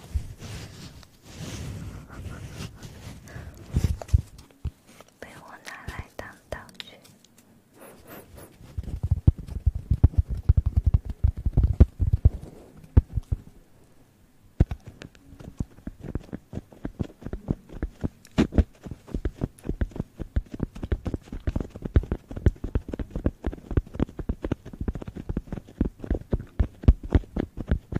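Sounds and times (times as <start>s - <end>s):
crisp taps and scratches on microphone: 0.0s - 7.2s, 7.8s - 13.5s, 14.6s - 27.9s
dull thumps on microphone: 8.7s - 13.4s.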